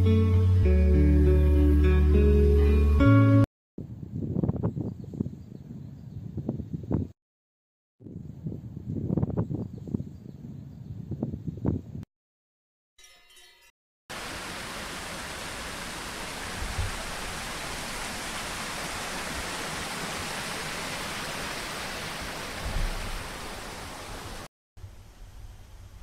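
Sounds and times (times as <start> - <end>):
steady rushing hiss: 14.1 - 26.0.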